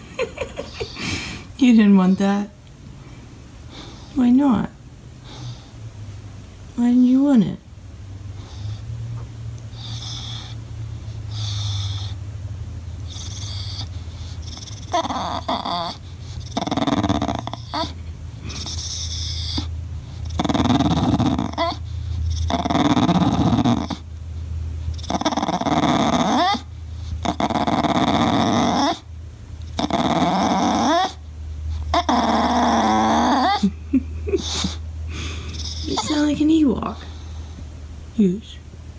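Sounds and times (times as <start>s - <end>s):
dog whining and grumbling: 13.0s - 24.1s, 24.9s - 29.1s, 29.7s - 37.2s.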